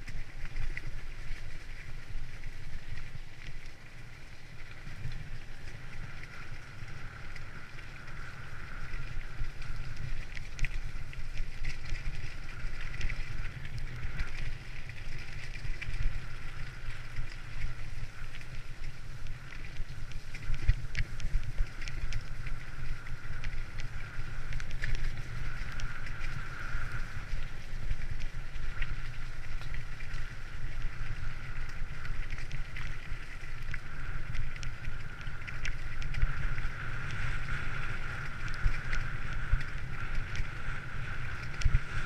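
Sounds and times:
bicycle tyres on wet gravel: 0.0s - 42.0s
wind buffeting microphone: 4.3s - 42.0s.

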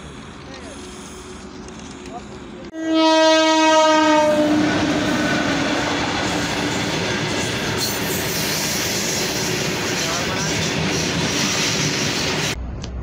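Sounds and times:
train running by: 0.0s - 13.0s
train horn: 2.7s - 6.8s.

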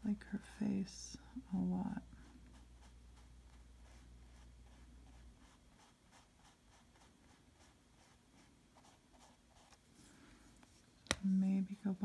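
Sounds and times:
paintbrush scratching on canvas: 2.4s - 9.8s.

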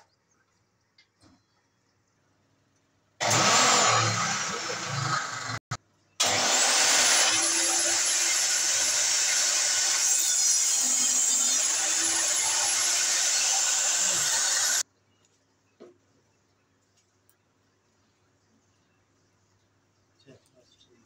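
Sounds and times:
table saw cutting board: 3.2s - 14.8s.

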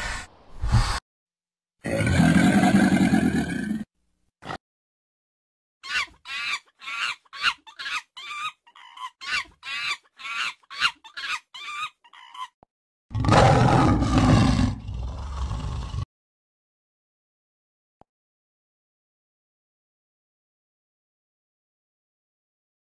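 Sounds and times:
deep animal roar: 1.8s - 3.9s, 13.1s - 16.1s.

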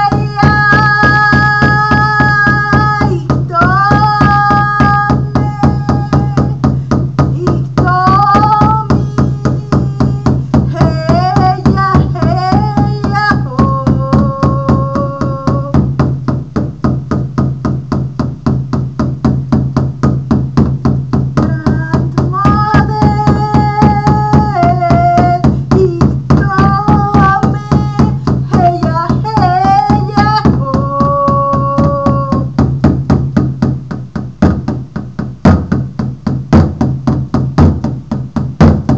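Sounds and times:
woman chanting: 0.0s - 6.7s, 7.3s - 15.8s, 21.4s - 32.6s
frame drum beat: 0.0s - 38.9s.

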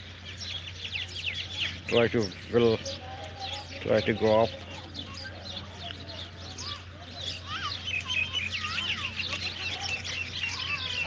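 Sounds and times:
small birds chirping: 0.0s - 11.0s
whistled bird calls: 4.8s - 11.0s.

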